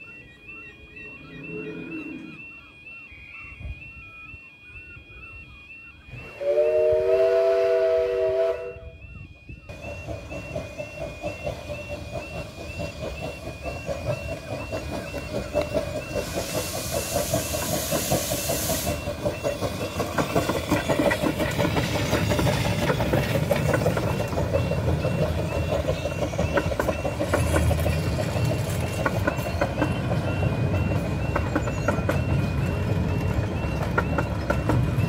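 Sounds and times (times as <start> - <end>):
level crossing warning alarm: 0.0 - 35.0
train wheel clatter: 9.7 - 35.0
loud hiss of steam: 16.1 - 19.1.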